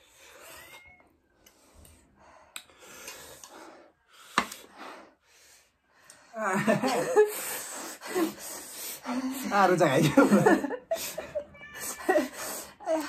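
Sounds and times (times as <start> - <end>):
heavy hissing breaths: 1.4 - 6.4, 7.1 - 9.5, 12.2 - 13.0.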